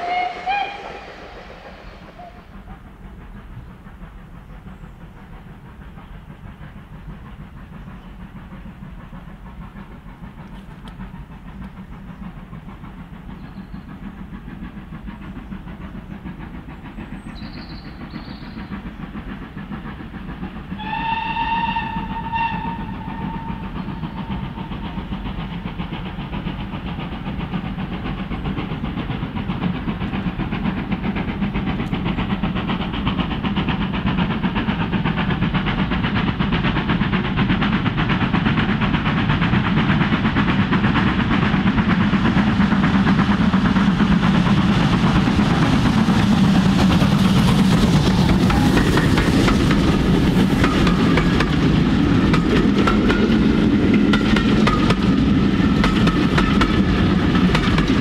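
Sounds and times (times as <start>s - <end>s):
steam whistle blast: 0.0s - 2.9s, 20.8s - 24.8s, 48.5s - 49.2s
steam locomotive exhaust beats: 0.0s - 58.0s.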